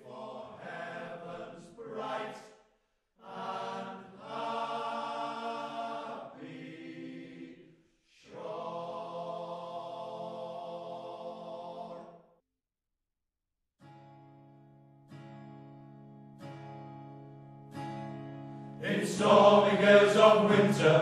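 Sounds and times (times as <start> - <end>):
male choir singing sustained chords: 0.0 - 2.5, 3.2 - 12.2, 18.8 - 21.0.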